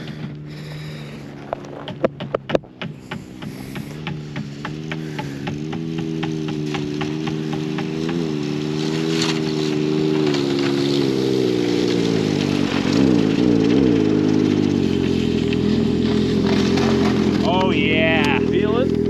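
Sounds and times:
engine running: 0:00.0 - 0:19.0.

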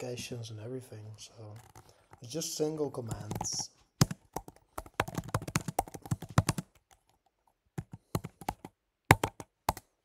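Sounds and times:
computer keyboard typing: 0:01.4 - 0:02.4, 0:03.0 - 0:09.9.

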